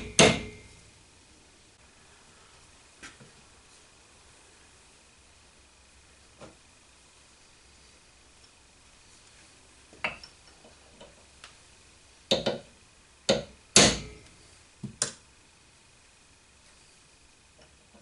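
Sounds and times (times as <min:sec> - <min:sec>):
hammer striking steel punch: 0:00.0 - 0:00.7, 0:13.3 - 0:14.2.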